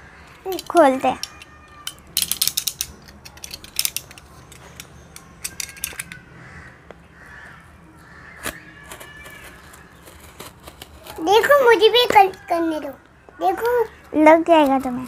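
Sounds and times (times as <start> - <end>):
scratching and clicking on cardboard: 8.4 - 12.5.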